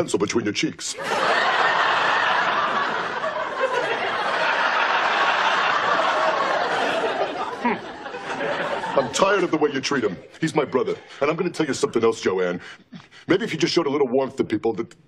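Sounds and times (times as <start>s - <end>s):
studio audience laughing: 0.9s - 12.0s.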